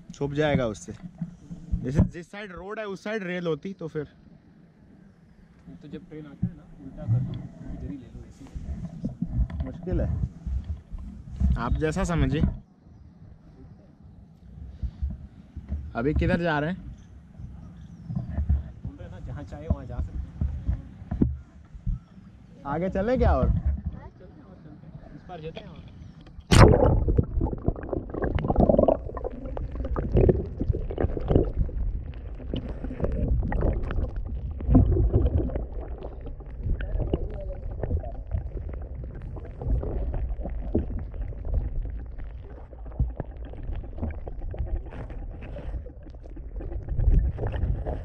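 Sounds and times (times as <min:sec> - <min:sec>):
muffled underwater river rumbling: 0:00.0 - 0:02.4, 0:04.3 - 0:13.9, 0:14.5 - 0:48.0
splash: 0:26.5 - 0:48.0.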